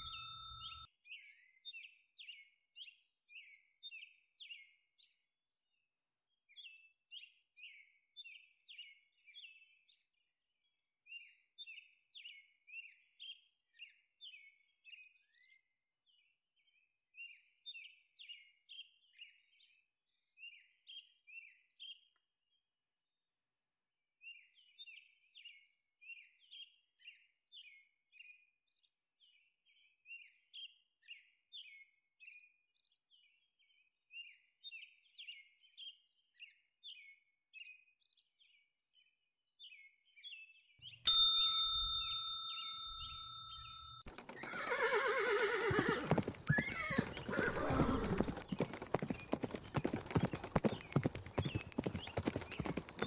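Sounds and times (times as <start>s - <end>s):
bright ding: 0.0s - 0.8s, 41.1s - 44.0s
faint bird chirping: 0.0s - 2.4s, 39.7s - 53.0s
fast clatter of hoofbeats: 44.1s - 45.0s, 45.6s - 53.0s
horse whinnying: 44.2s - 48.5s.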